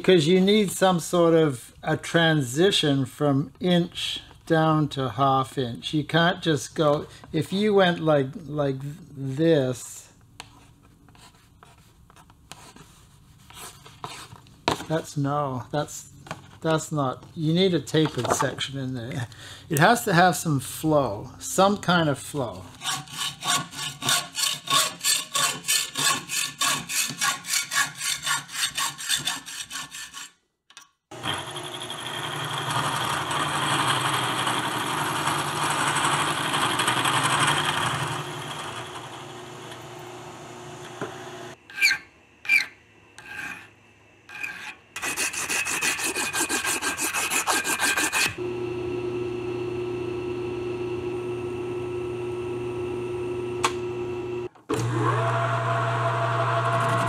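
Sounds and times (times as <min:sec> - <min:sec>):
hand tool rasping on metal: 0:22.7 - 0:30.4, 0:41.7 - 0:43.7, 0:44.3 - 0:48.4
electric motor humming: 0:31.2 - 0:41.6, 0:48.4 - 0:57.0.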